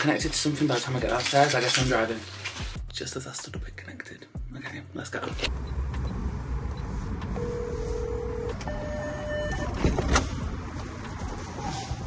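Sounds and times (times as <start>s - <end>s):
keypad beeping: 5.6s - 9.8s.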